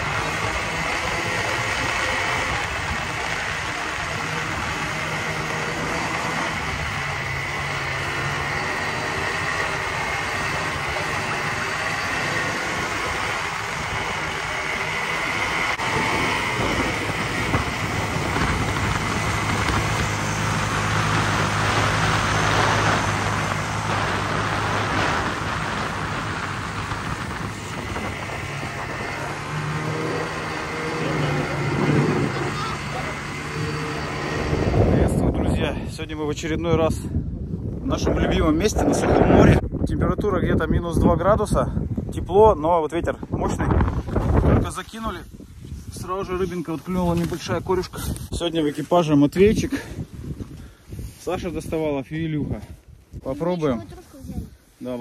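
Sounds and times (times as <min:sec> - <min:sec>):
snowmobile engine running: 0:00.0 - 0:35.7
track noise: 0:00.0 - 0:36.5
wind rushing: 0:00.0 - 0:48.6.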